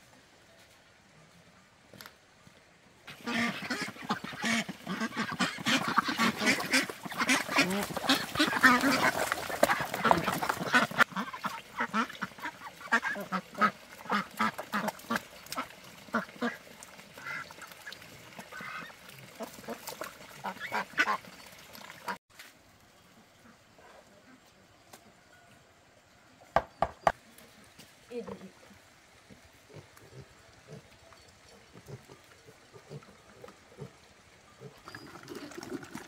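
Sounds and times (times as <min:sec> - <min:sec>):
poultry calling: 0:03.1 - 0:15.2.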